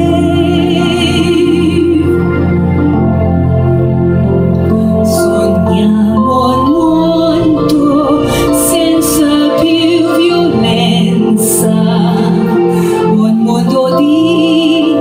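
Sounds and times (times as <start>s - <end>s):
woman singing with vibrato: 0.0s - 2.7s, 4.7s - 15.0s
instrumental accompaniment: 0.0s - 15.0s.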